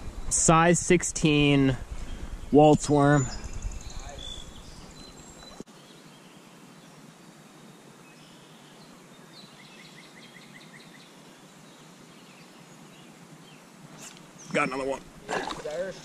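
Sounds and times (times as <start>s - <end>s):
small birds chirping: 0.0s - 16.0s
soft creek hiss: 0.0s - 16.0s.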